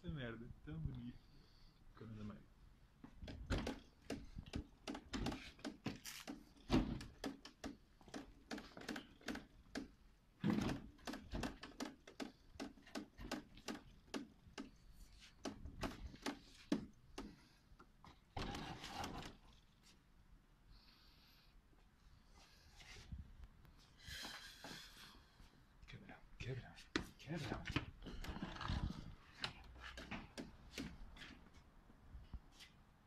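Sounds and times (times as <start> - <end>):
sharp clicks and knocks: 3.2 - 19.5.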